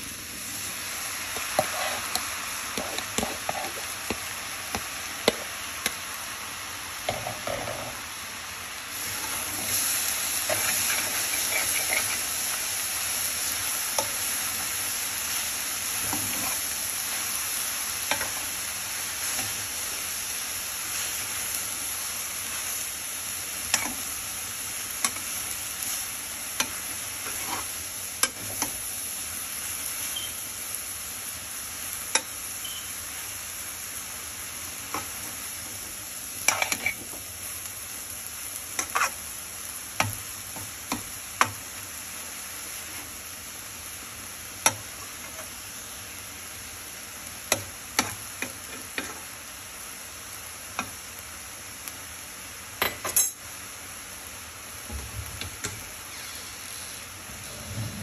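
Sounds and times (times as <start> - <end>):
food sizzling in a skillet: 0.0 - 58.0
metal utensil clicking on pan: 23.7 - 24.0.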